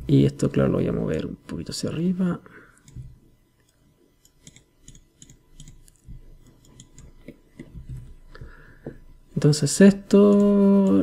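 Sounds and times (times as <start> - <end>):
mouse and keyboard clicking: 3.6 - 7.7, 10.1 - 11.0.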